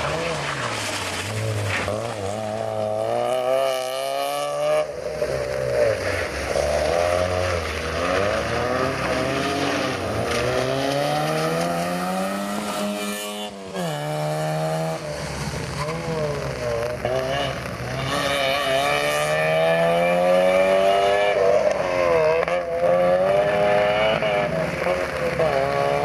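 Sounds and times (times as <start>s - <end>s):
car engine revving hard: 17.0s - 26.0s.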